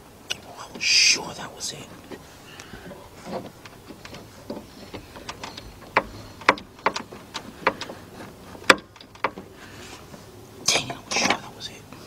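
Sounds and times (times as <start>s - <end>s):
tools clicking and tapping: 3.3s - 8.0s.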